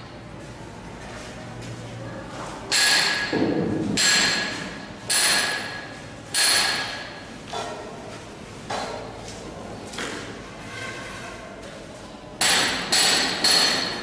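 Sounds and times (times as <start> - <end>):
hammer striking metal with ring: 12.4 - 14.0.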